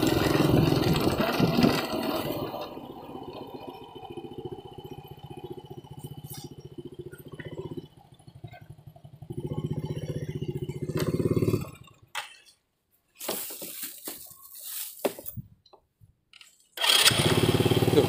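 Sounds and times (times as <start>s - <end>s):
small motorcycle engine running: 0.0s - 12.3s, 16.8s - 18.0s
rustling and knocks: 13.2s - 16.6s.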